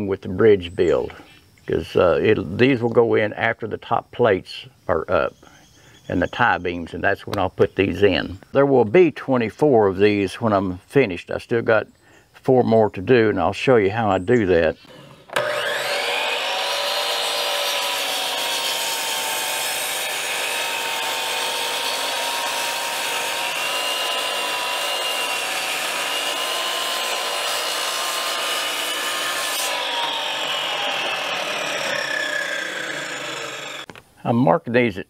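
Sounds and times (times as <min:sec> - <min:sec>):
saw blade cutting wood: 0:14.8 - 0:33.9
saw motor whine: 0:14.9 - 0:33.9.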